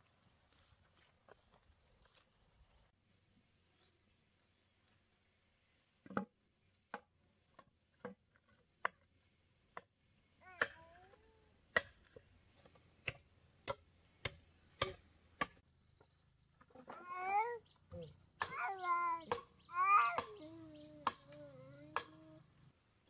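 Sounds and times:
machete chopping bamboo: 11.7 - 12.2, 13.0 - 15.6
child vocal sound: 16.8 - 17.6, 18.5 - 22.5.

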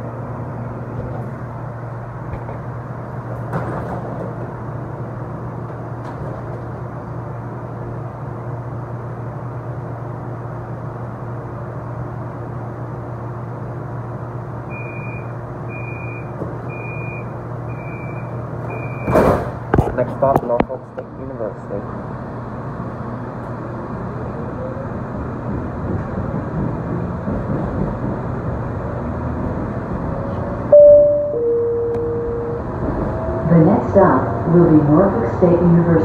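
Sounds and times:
train equipment hum: 0.0 - 36.0
train doors shutting thud: 2.3 - 4.7, 5.6 - 6.8, 18.0 - 20.0
door warning beeps: 14.7 - 19.2, 30.7 - 32.7.

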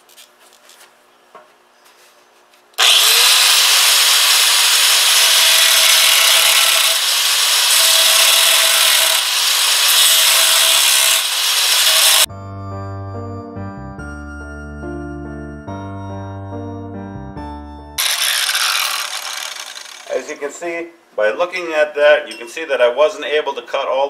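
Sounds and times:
angle grinder cutting steel: 2.8 - 12.3, 18.0 - 20.3.

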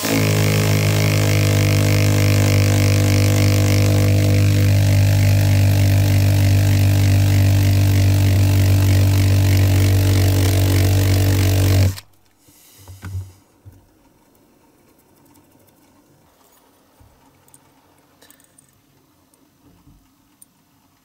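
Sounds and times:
cordless drill running: 0.0 - 12.1.

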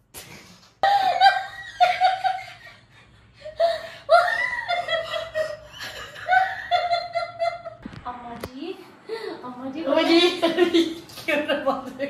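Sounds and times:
woman laughing: 0.8 - 7.8.

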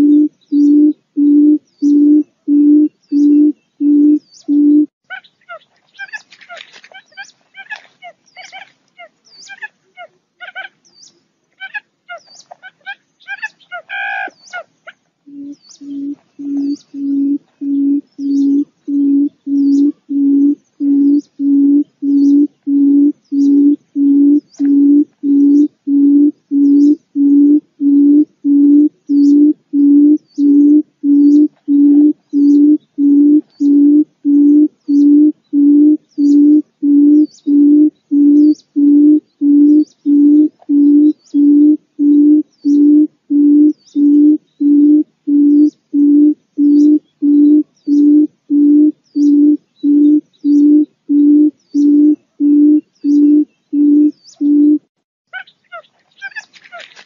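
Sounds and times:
bird booming hooting call: 0.0 - 4.9, 15.3 - 54.9
faint high chirps: 0.0 - 54.8.

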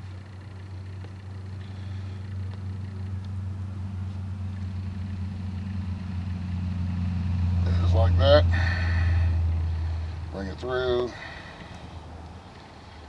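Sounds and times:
low engine hum: 0.0 - 13.0.

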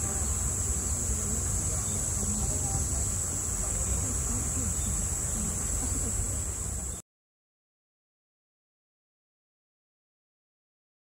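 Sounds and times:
cicadas shrilling: 0.0 - 7.0
faint voices: 0.0 - 7.0.

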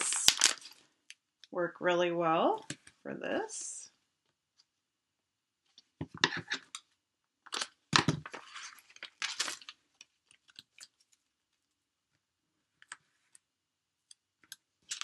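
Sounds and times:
paper crackling and rustling: 7.6 - 11.2.

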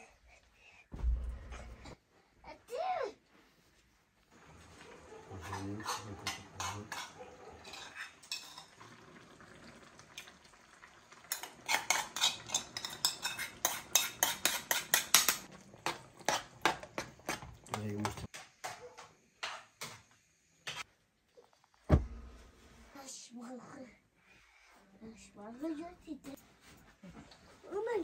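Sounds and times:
metal spoon scraping a pan: 5.3 - 8.8, 11.3 - 18.3.

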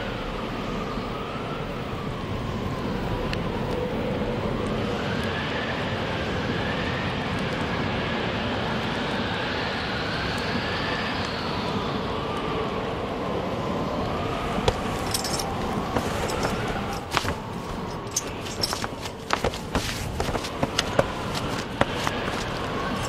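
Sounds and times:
metallic clinks of harness: 14.7 - 23.0.

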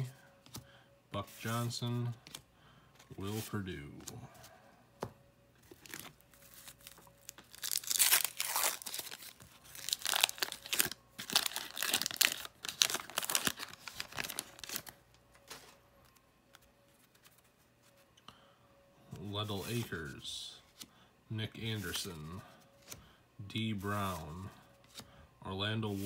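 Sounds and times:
wrapper tearing and crinkling: 5.8 - 15.0.

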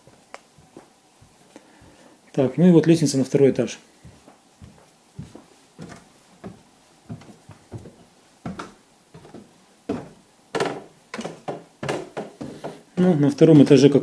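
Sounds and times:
footsteps on wooden stairs: 0.0 - 2.1, 4.0 - 13.9.

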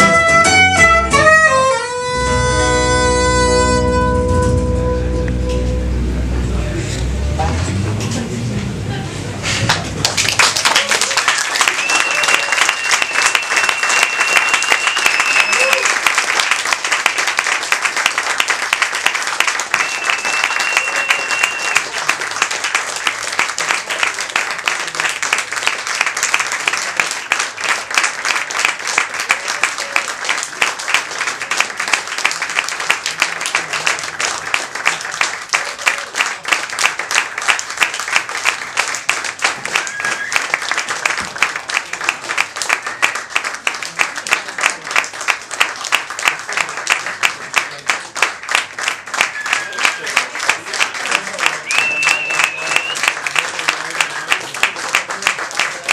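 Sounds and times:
audience applauding: 9.5 - 55.9
high whistle from crowd: 11.6 - 15.9, 19.7 - 22.0, 39.7 - 40.6, 49.2 - 50.2, 51.6 - 53.2.

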